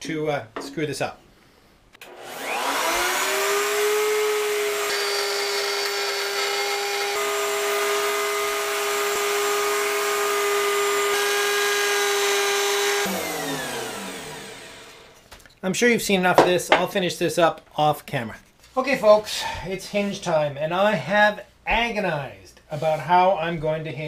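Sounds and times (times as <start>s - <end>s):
wood router high whine: 2.0s - 15.2s.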